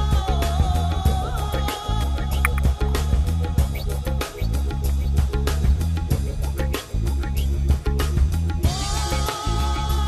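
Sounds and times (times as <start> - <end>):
music with bass and drum beat: 0.0 - 10.0.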